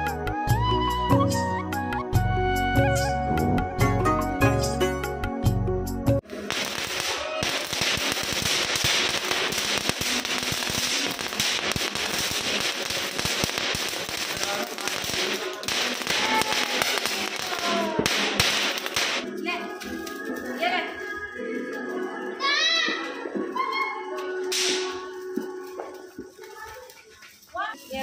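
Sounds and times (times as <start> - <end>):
firework crackling hiss: 6.2 - 23.2, 24.4 - 28.0.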